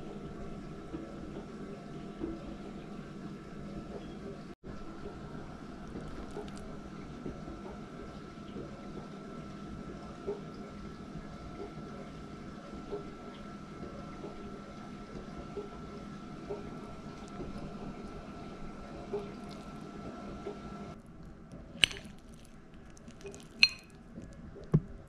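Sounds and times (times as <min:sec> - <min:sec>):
spoon scooping food: 0:19.4 - 0:19.8, 0:21.2 - 0:24.3.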